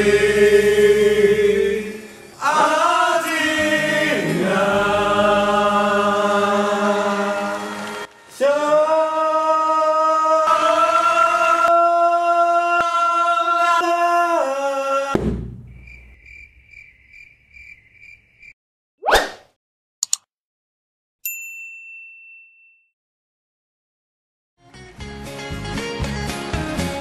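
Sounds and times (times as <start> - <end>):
men singing a chord: 0.0 - 15.1
clicks: 20.0 - 20.3
bell-like ding: 21.2 - 22.9.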